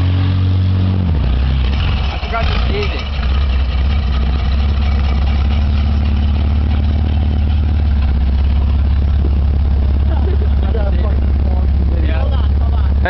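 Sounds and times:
car engine running at low speed: 0.0 - 13.0.

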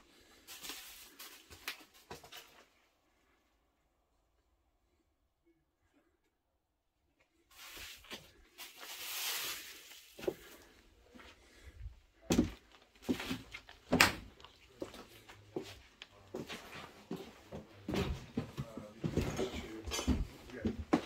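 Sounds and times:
rustling: 7.5 - 10.8.

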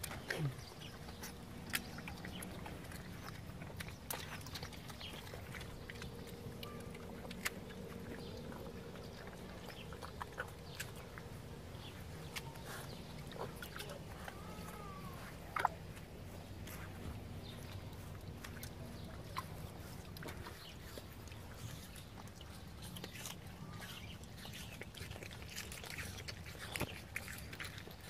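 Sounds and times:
low background hum: 0.0 - 28.0.

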